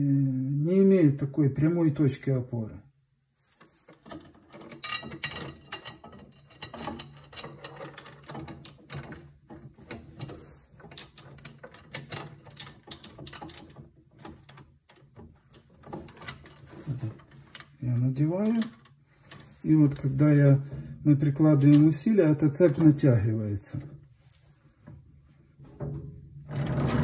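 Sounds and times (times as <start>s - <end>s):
metal chain clinking and rattling: 3.7s - 20.3s
chain links knocking on metal gears: 4.0s - 20.0s.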